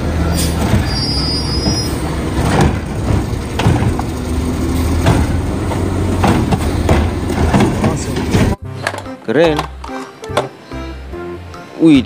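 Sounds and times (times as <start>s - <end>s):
garbage truck idling: 0.0s - 8.6s
hydraulic arm clunks and knocks: 1.6s - 9.6s.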